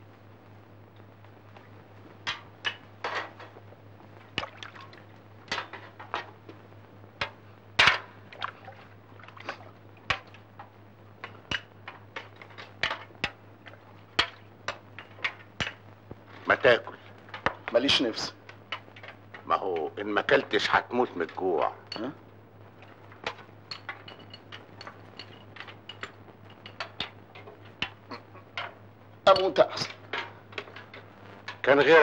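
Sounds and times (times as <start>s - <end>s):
liquid sloshing: 4.4s - 5.1s, 8.3s - 9.8s
spoons clinking against metal bowls: 23.3s - 27.2s.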